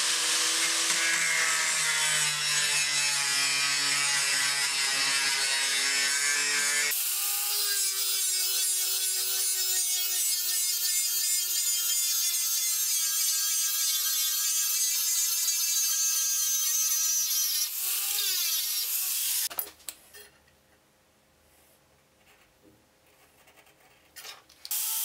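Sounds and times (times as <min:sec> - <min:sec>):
angle grinder cutting steel: 0:00.0 - 0:19.5, 0:24.7 - 0:25.0.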